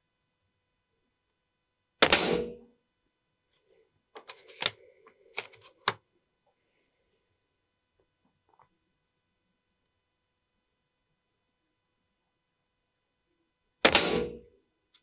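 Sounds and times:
air rifle shot: 0:02.0 - 0:02.6, 0:13.8 - 0:14.4.

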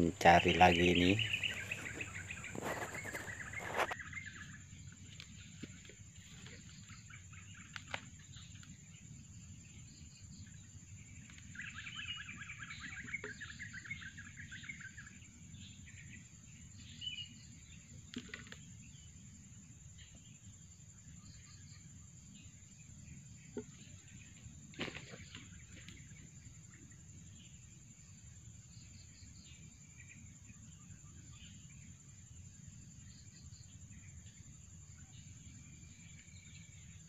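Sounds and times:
bird trill: 0:00.0 - 0:04.6
small birds chirping: 0:00.0 - 0:37.0
clicks and rustles of vines: 0:01.2 - 0:04.0.

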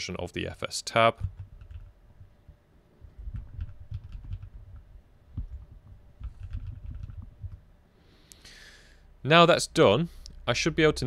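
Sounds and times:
typing on computer keyboard: 0:01.2 - 0:01.9, 0:03.2 - 0:07.6.

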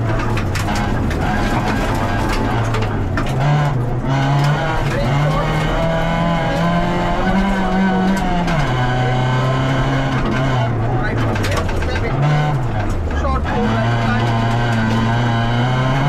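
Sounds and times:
rally car engine changing gears: 0:00.0 - 0:16.0.

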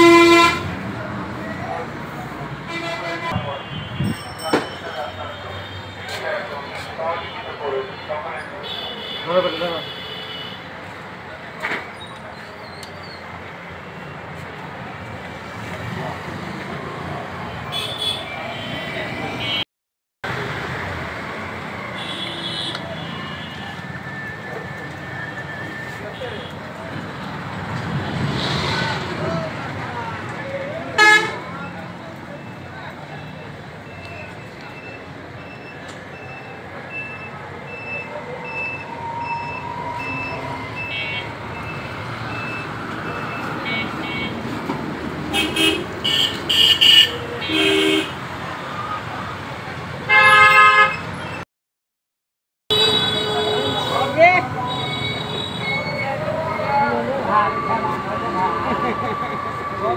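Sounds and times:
road traffic hum: 0:00.0 - 0:19.6, 0:20.2 - 0:51.4, 0:52.7 - 0:59.9
crowd noise: 0:00.5 - 0:19.6, 0:20.3 - 0:50.1, 0:52.8 - 0:59.9
reversing alarm beeps: 0:31.6 - 0:43.6.

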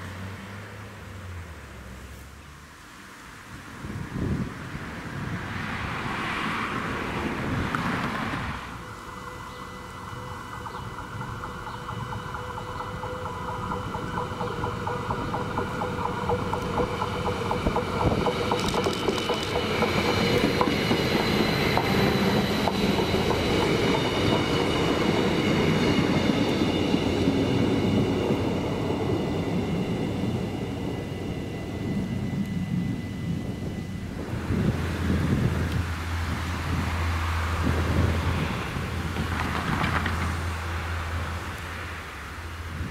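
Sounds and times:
diesel train passing: 0:00.0 - 0:42.9
wheel clicks on rails: 0:10.6 - 0:20.9.

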